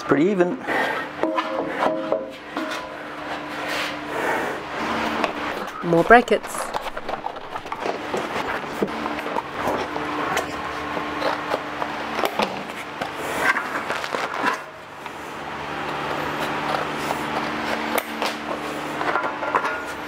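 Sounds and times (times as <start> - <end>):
steady low hum: 0.0 - 20.0
cardboard rustling and crackling: 12.2 - 14.7.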